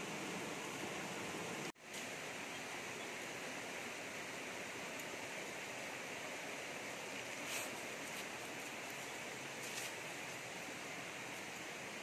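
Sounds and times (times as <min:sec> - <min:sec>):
stream rushing over rocks: 0:00.0 - 0:12.0
sharp rustling: 0:07.3 - 0:10.2.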